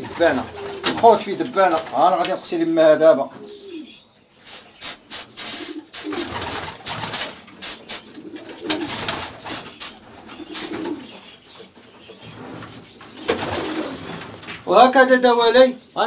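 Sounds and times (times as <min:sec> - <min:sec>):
pigeons cooing: 0:00.0 - 0:14.5
aerosol can spraying: 0:04.4 - 0:08.1, 0:08.8 - 0:10.0, 0:10.6 - 0:10.8.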